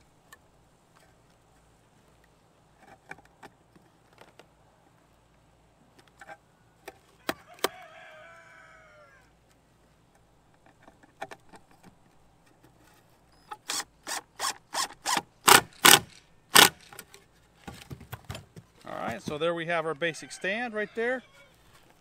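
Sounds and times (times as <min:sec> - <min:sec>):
impact driver rattling hammering: 0:14.0 - 0:17.0.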